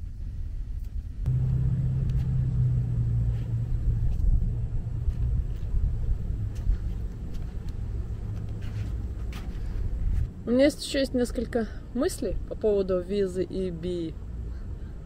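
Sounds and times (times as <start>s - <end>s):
wind rumble on microphone: 0.0s - 10.4s.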